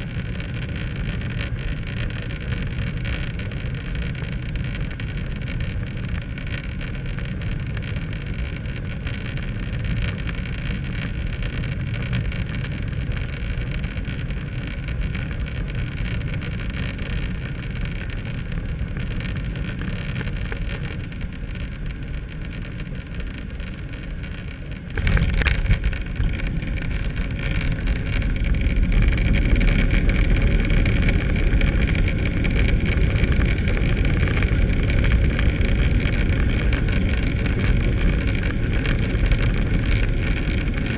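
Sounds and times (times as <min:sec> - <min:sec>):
tyres rumbling on runway: 0:13.9 - 0:40.9
wheels touching down thump: 0:18.6 - 0:37.3.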